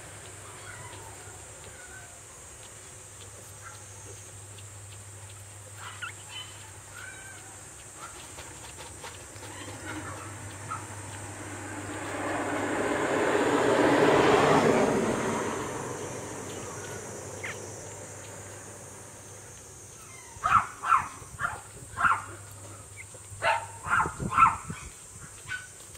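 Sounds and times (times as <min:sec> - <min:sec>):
puppies crying in high squeaks: 0:00.4 - 0:02.2, 0:05.8 - 0:07.6, 0:09.4 - 0:10.9, 0:16.6 - 0:17.6, 0:19.9 - 0:21.2
rushing noise: 0:09.7 - 0:19.3.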